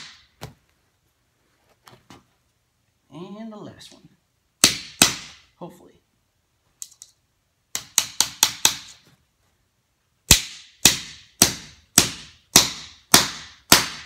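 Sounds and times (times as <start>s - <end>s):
hammer striking a nail: 4.6s - 5.4s, 7.7s - 9.0s, 10.3s - 14.0s.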